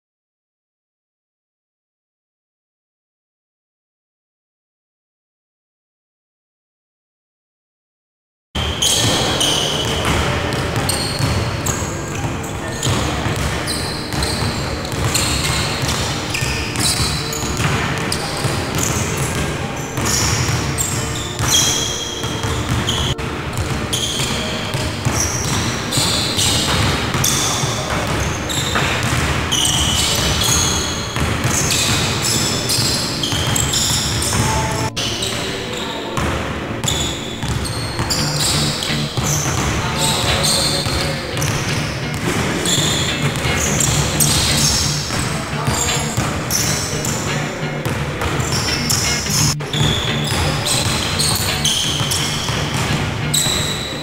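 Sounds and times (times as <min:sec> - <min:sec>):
basketballs bouncing on wooden floor: 0:08.6 - 0:35.5, 0:36.2 - 0:54.0.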